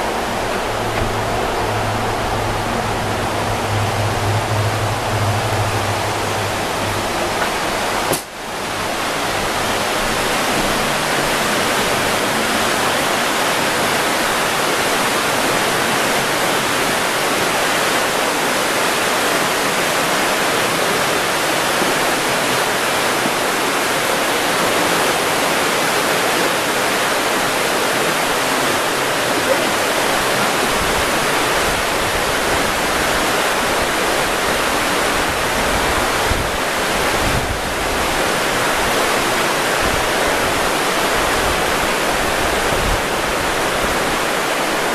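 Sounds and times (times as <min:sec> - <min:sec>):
low hum: 0:00.0 - 0:12.2
river rushing over rocks: 0:00.0 - 0:44.9.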